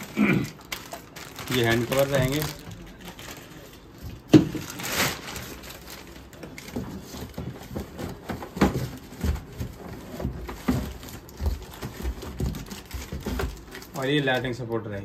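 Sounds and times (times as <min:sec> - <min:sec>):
plastic packaging crinkling: 0:00.0 - 0:14.6
bumps in cardboard box: 0:06.8 - 0:13.6.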